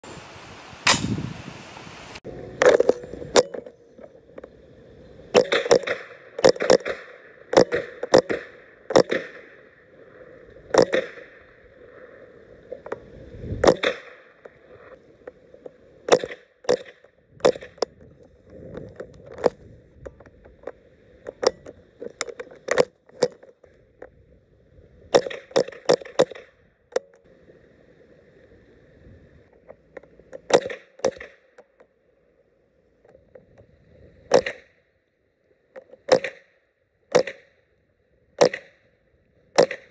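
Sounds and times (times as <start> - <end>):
rifle shots: 0.9 - 1.2.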